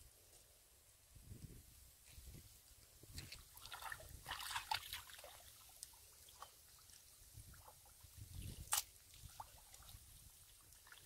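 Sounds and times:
muddy water sloshing: 3.1 - 11.0.

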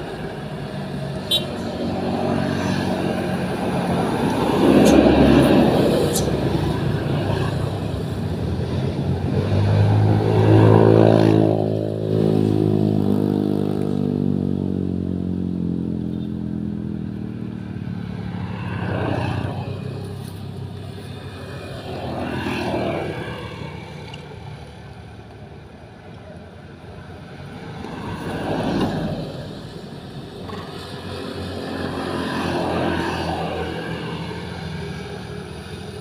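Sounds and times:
motor vehicle passing: 0.0 - 25.3.

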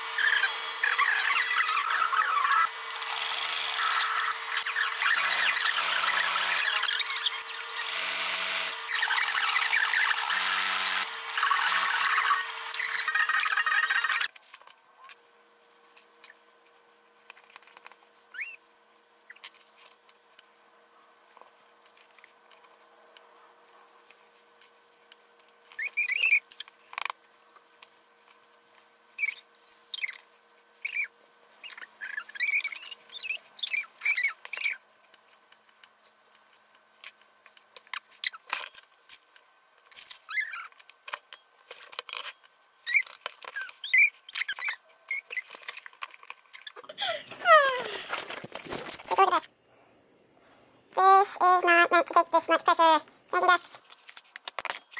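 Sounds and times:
marker pen squeaking on cloth: 3.8 - 7.4, 18.3 - 18.6, 25.7 - 26.7, 29.2 - 34.8, 40.1 - 40.7, 42.8 - 46.8.

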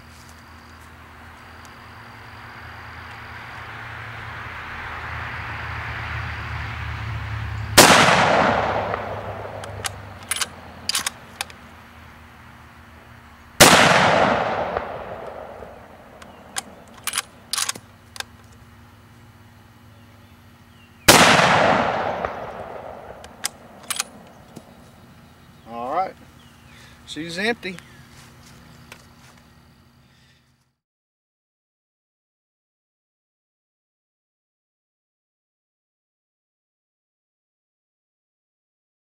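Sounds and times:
rifle shots with echo: 7.8 - 11.2, 13.6 - 17.8, 21.1 - 24.3
rifle bolt metallic clicks: 8.9 - 11.6, 16.2 - 18.3, 23.2 - 24.4.

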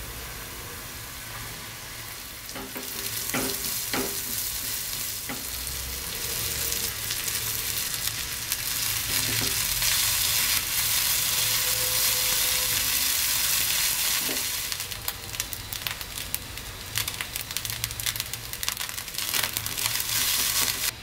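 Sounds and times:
rice sizzling in a pan: 0.0 - 21.0.

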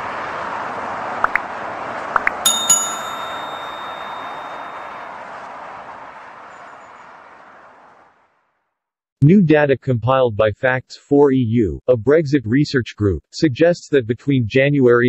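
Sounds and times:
bright bell ding: 2.5 - 5.2.

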